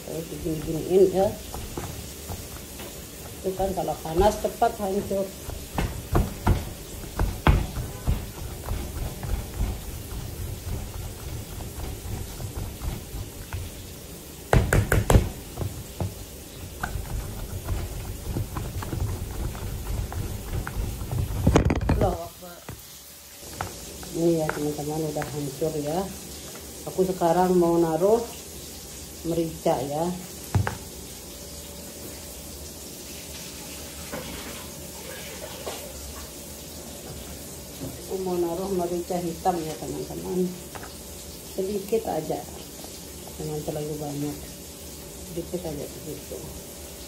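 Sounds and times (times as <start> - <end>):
chicken sizzling in oil: 0.0 - 47.0
potato masher thudding in a bowl: 5.4 - 13.7, 14.5 - 22.2
faint knocks of kitchen things: 5.5 - 10.0, 14.5 - 19.1, 30.5 - 30.9.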